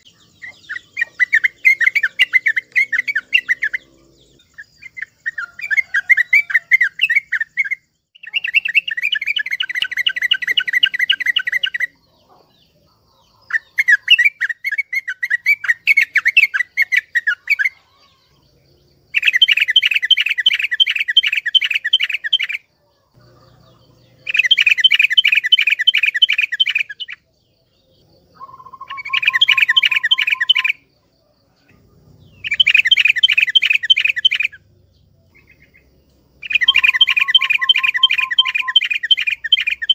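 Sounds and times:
bulbul rapid chirping song: 0:00.0 - 0:39.9
low bird whistle: 0:28.4 - 0:30.8, 0:36.4 - 0:39.9.

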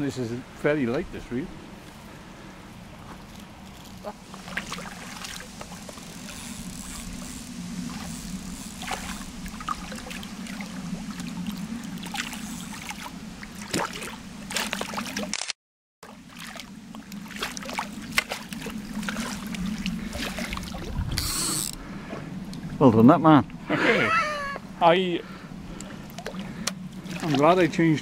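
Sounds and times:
steady low hum: 0:00.0 - 0:15.3, 0:16.1 - 0:28.0
fish splashing and thrashing: 0:03.0 - 0:22.8, 0:25.7 - 0:27.6.

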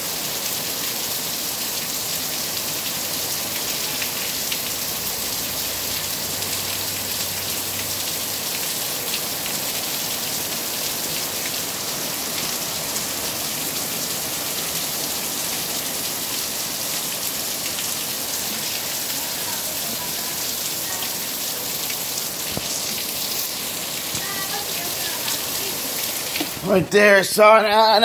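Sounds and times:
heavy rain pouring: 0:00.0 - 0:28.0
raindrop ticks: 0:22.4 - 0:26.6.

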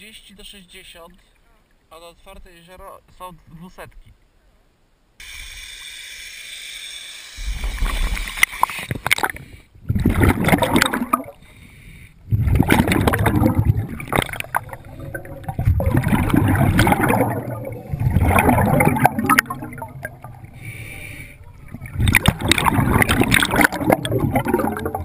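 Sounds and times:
scuba exhaust bubbles gurgling: 0:09.9 - 0:11.4, 0:12.3 - 0:25.0.

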